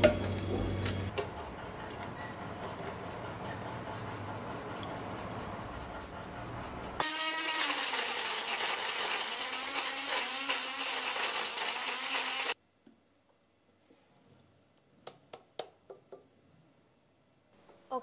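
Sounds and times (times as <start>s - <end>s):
blender motor grinding: 7.0s - 12.6s.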